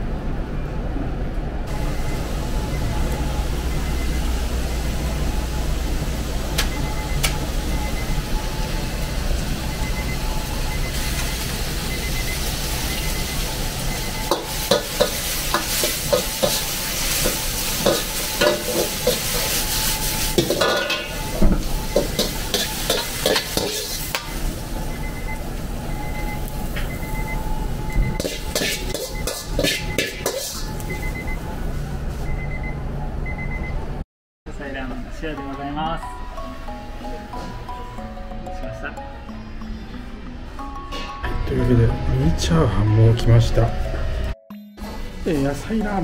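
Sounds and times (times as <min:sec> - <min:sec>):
low kitchen hum: 0:00.0 - 0:34.0
vegetables sizzling in a wok: 0:01.7 - 0:27.4, 0:28.0 - 0:31.4
metal ladle scraping a wok: 0:22.2 - 0:24.2, 0:28.2 - 0:30.7.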